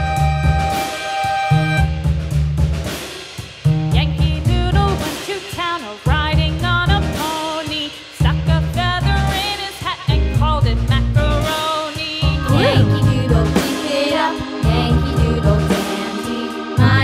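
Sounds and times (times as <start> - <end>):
upbeat music with bass beat: 12.2 - 17.0.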